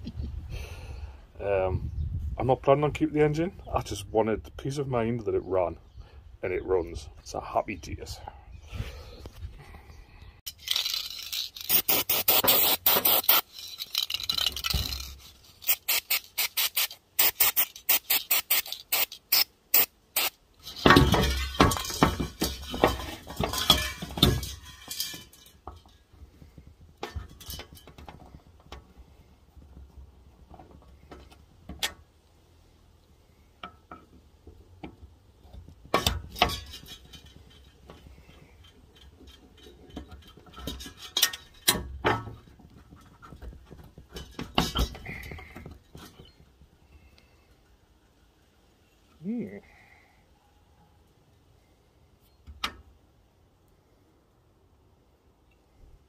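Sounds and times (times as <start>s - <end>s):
metal parts clinking and scraping: 10.5s - 26.1s, 36.0s - 43.0s
hissing noise: 11.6s - 13.5s, 15.6s - 20.4s.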